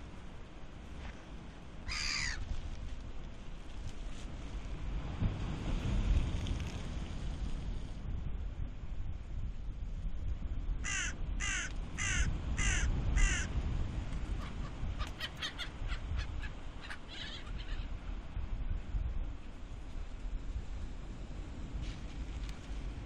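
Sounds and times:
wind and waves rumble: 0.0 - 23.0
seagull calling: 1.9 - 2.4, 10.9 - 13.5, 14.3 - 17.9.

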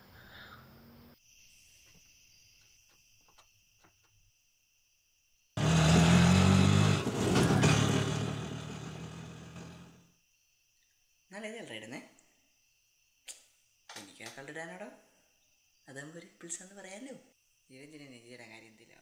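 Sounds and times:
faint crickets chirping: 0.0 - 5.6, 9.9 - 19.0
vehicle engine humming: 5.6 - 10.0.

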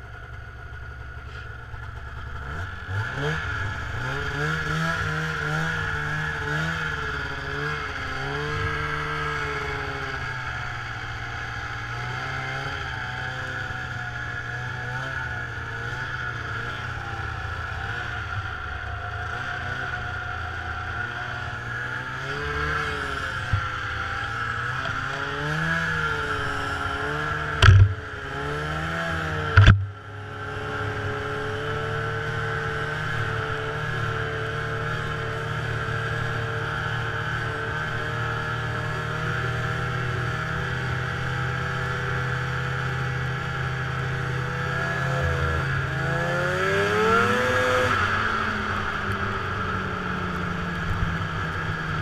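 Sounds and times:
snowmobile engine running: 0.0 - 52.0
sharp thumps: 27.6 - 28.0, 29.6 - 29.9.

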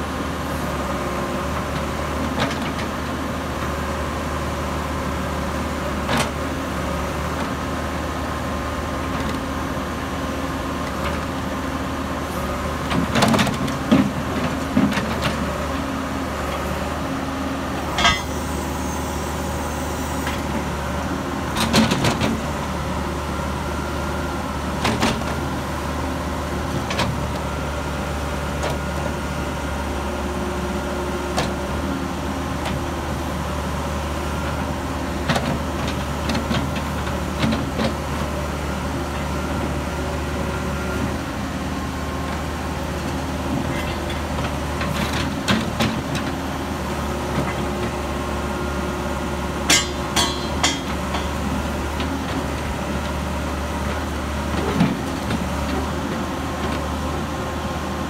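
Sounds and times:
diesel engine running: 0.0 - 58.0
metallic clanks and knocks: 18.0 - 18.4, 49.7 - 51.4.

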